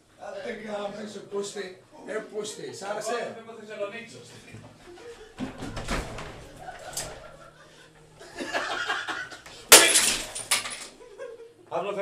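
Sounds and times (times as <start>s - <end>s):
men talking: 0.2s - 4.8s, 11.7s - 12.0s
men laughing: 4.8s - 5.7s, 6.5s - 9.7s, 10.9s - 11.7s
drinking glass smashing: 9.7s - 10.9s.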